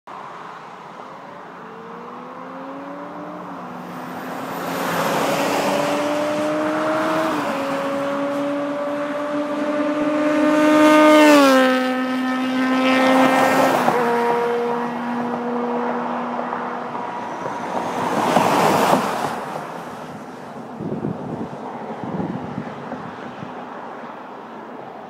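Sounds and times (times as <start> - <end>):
vehicle passing at speed: 1.5 - 24.0
tyre and wind noise: 17.3 - 23.9.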